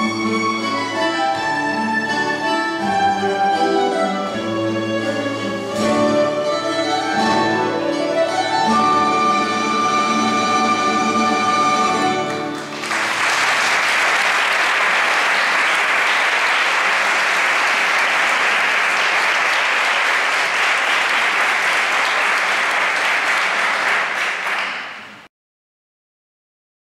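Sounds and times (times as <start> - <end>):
audience applause: 12.3 - 25.2.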